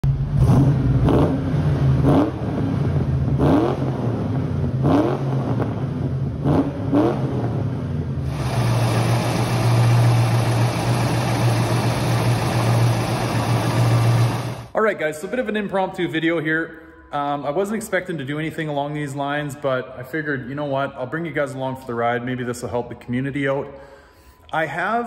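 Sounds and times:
car engine revving in tunnel: 0:00.0 - 0:14.7
steady hissy engine noise: 0:08.3 - 0:14.7.

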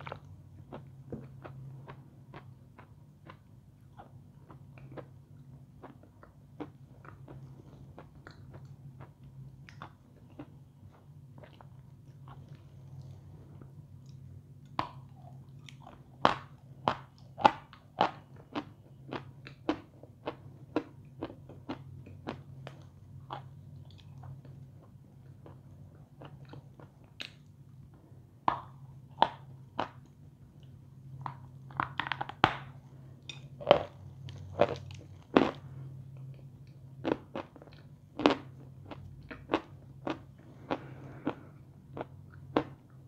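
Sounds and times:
steady low hum: 0:00.0 - 0:43.0
person chewing crunchy chalk: 0:33.6 - 0:42.9.

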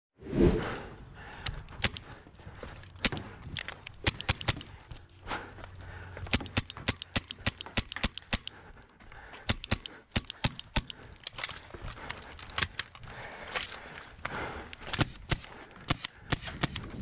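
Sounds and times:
paintball markers firing: 0:01.7 - 0:02.2, 0:02.9 - 0:05.0, 0:06.3 - 0:08.8, 0:09.4 - 0:13.0, 0:14.3 - 0:17.0.

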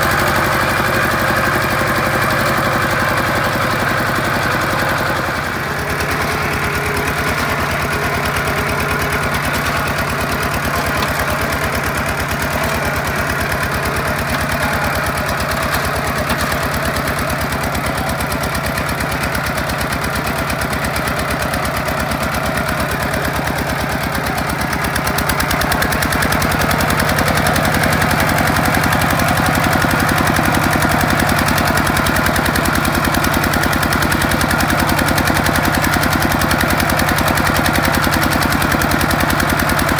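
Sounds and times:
diesel tractor engine chugging: 0:00.0 - 0:39.9.

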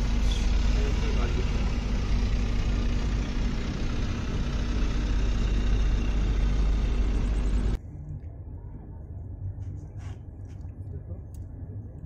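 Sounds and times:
train rumbling on track: 0:00.0 - 0:07.8.

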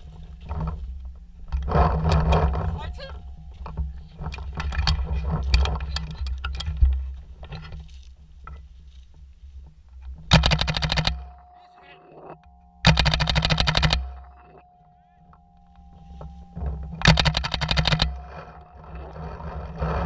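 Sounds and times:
low rumble: 0:00.0 - 0:10.3
knocks and clicks: 0:00.4 - 0:07.9, 0:09.9 - 0:20.0
paintball marker rapid bursts: 0:10.3 - 0:11.2, 0:12.9 - 0:14.0, 0:17.0 - 0:18.1.

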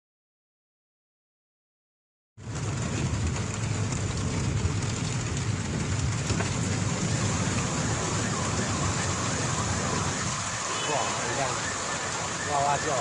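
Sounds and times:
low rumble: 0:02.4 - 0:10.7
heavy rain hissing: 0:02.6 - 0:13.0.

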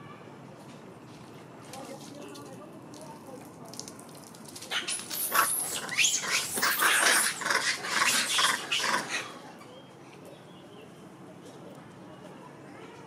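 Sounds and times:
macaques calling: 0:04.7 - 0:09.6.

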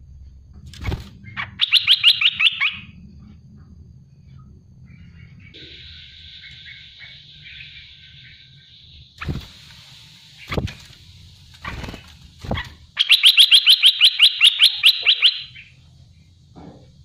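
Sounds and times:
bird calling: 0:01.2 - 0:03.0, 0:04.8 - 0:09.3, 0:12.5 - 0:15.8.

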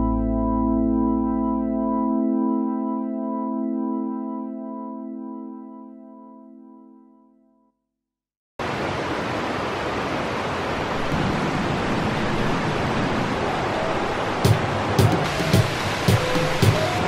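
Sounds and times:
soft keyboard chord: 0:00.0 - 0:07.7.

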